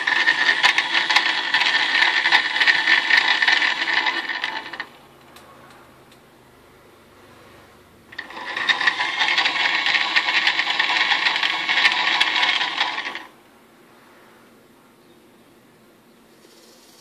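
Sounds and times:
servo motor rattling buzz: 0.0s - 4.9s, 8.1s - 13.3s.

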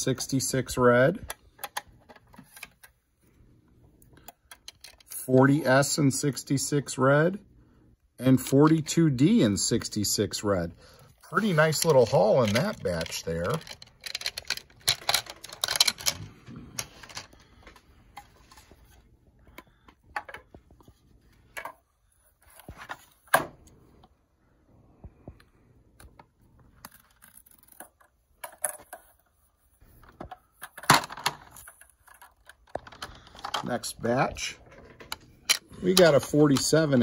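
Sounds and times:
plastic slabs clicking and clattering: 11.4s - 17.4s, 30.0s - 33.7s.

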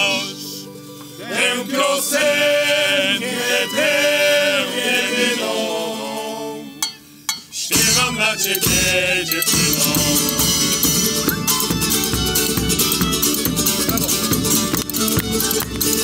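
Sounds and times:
male vocal group singing: 0.0s - 6.9s, 7.5s - 11.0s
drum guitar and mandolin: 6.8s - 16.0s.

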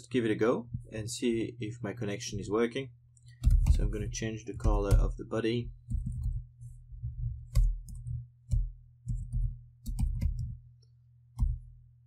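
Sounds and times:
steady low hum: 0.0s - 12.0s
keyboard typing: 3.2s - 5.1s, 5.8s - 6.5s, 7.2s - 10.6s.

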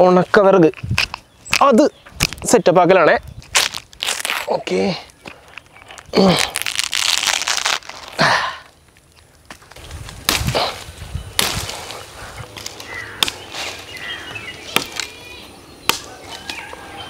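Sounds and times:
machete swishing through twigs: 9.8s - 14.0s
machete chopping wood: 10.3s - 10.8s, 11.4s - 11.8s, 12.6s - 13.4s, 14.7s - 15.2s, 15.9s - 16.6s.

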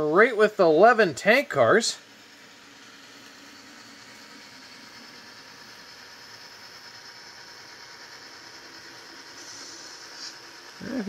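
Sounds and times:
model locomotive motor whirring: 0.0s - 11.0s.

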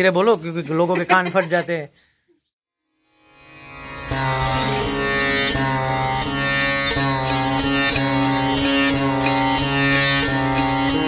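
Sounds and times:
stringed instrument melody: 2.8s - 11.0s
low drone note: 3.0s - 11.0s.

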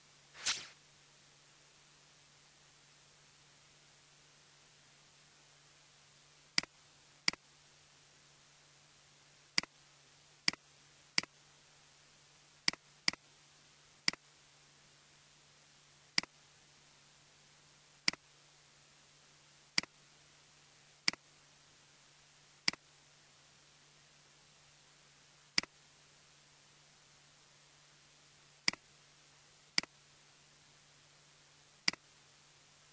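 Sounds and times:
faint hum and hiss: 0.0s - 32.9s
computer mouse clicking: 12.7s - 13.2s.

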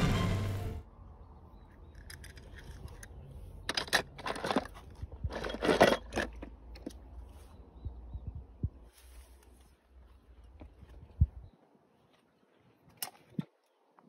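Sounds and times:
small hard objects scraping: 1.8s - 7.0s.

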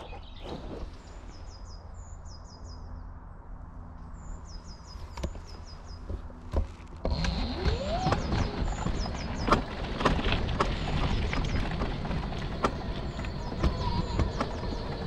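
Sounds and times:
birds chirping: 0.0s - 3.3s, 4.0s - 15.0s
low rumbling: 0.0s - 15.0s
knocks and rattles: 6.0s - 15.0s
electric motor whine: 6.8s - 15.0s.

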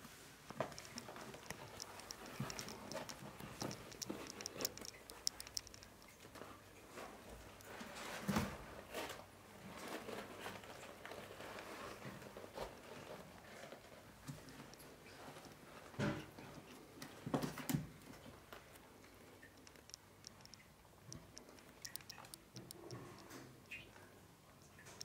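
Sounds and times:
kittens scratching in cat litter: 0.1s - 19.0s.

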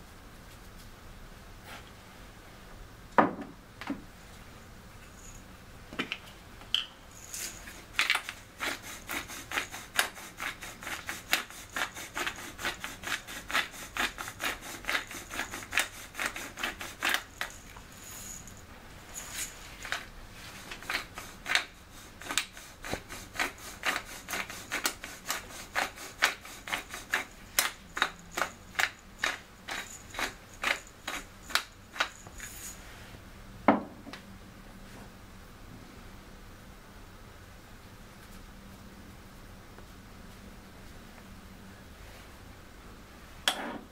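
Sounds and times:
knock: 3.2s - 4.0s, 33.7s - 34.0s
spice mill grinding: 7.2s - 32.8s.

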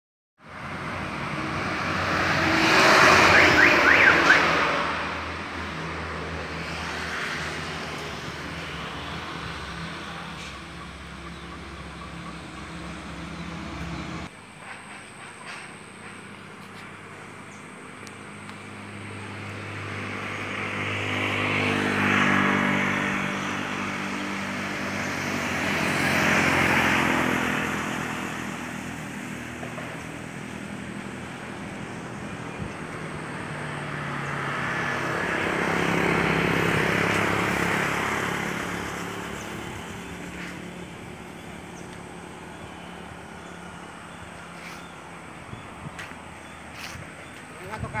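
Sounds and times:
road vehicles passing: 0.4s - 48.0s.

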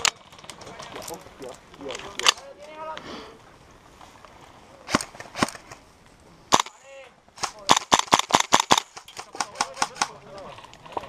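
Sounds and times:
airsoft rifle shots: 4.9s - 5.8s, 6.5s - 6.8s, 7.4s - 10.2s.

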